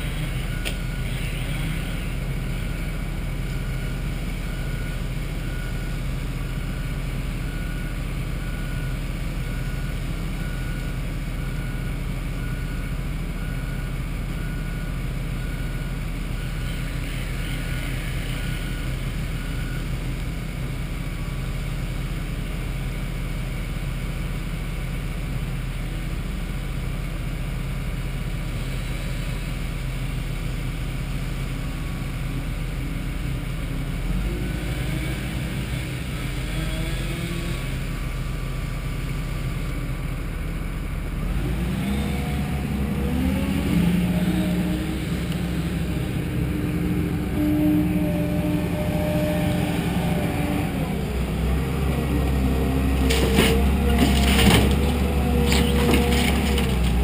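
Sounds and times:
engine droning: 0.0s - 57.0s.

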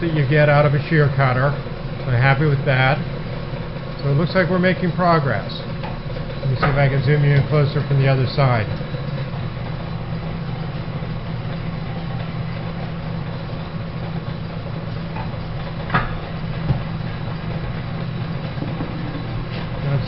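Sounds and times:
metal planer droning: 0.0s - 20.0s.

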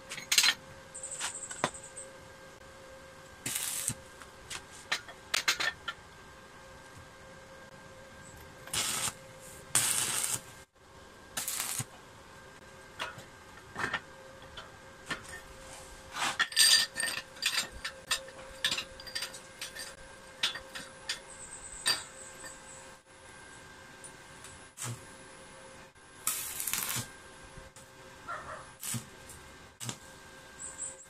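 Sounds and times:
arc welder crackling hiss: 3.4s - 5.5s, 8.6s - 10.7s, 11.3s - 12.0s, 24.4s - 25.2s, 26.2s - 31.0s.

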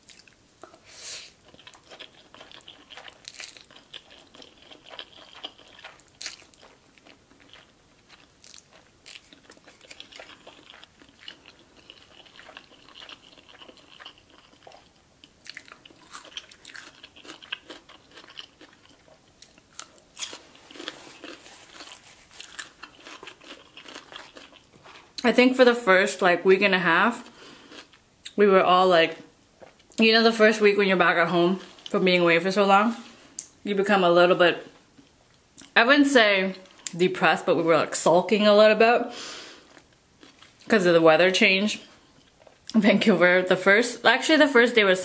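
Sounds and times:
crunching pickled radish: 0.0s - 25.3s
slurping and chewing noodles: 0.1s - 25.1s.

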